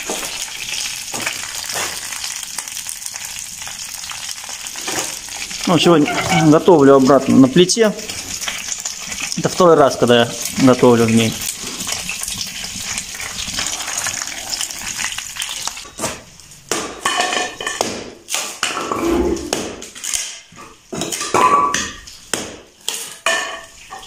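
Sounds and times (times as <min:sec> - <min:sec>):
wood fire crackling: 0:00.0 - 0:16.8.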